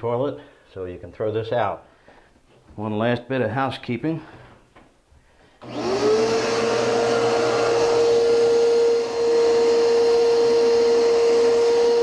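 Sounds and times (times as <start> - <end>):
shop vacuum whining: 5.6 - 12.0.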